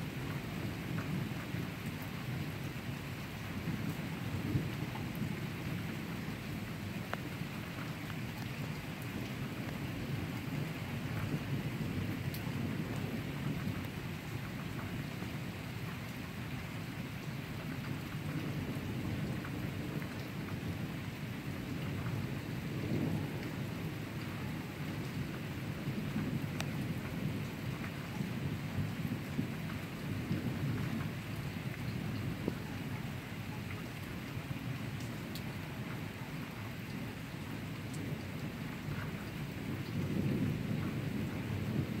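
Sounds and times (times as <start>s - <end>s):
steady rain: 0.0s - 42.0s
rolling thunder: 18.3s - 33.2s, 37.5s - 42.0s.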